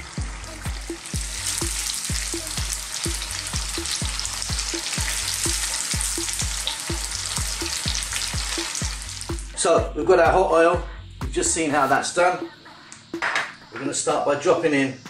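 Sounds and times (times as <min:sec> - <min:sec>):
tofu sizzling in oil: 0:00.0 - 0:09.5
low regular beat: 0:00.0 - 0:14.0.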